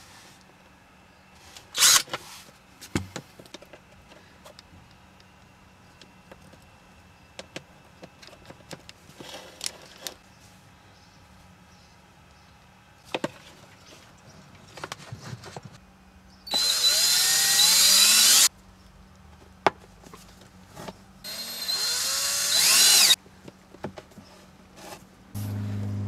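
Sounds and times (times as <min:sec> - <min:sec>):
cordless drill boring plastic: 0:16.5 - 0:18.5, 0:21.3 - 0:23.2.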